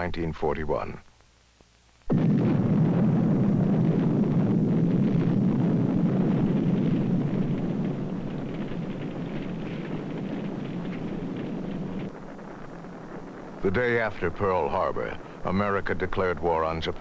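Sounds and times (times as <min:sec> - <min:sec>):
low rumbling roar: 0:02.1 - 0:15.4.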